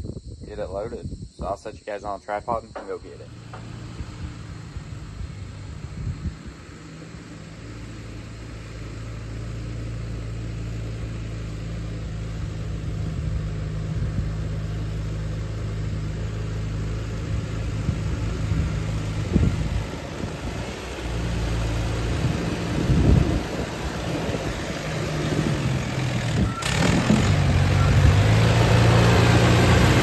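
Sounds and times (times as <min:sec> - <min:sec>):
tractor engine running: 0:02.6 - 0:30.0.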